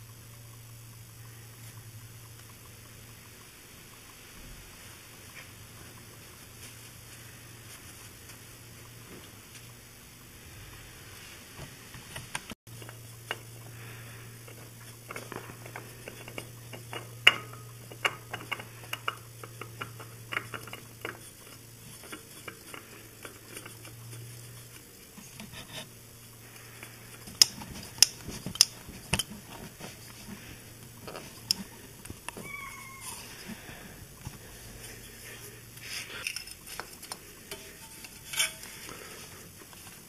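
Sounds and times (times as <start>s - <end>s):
steady low hum: 0.0s - 40.0s
light clicks and metallic knocks: 14.4s - 32.6s.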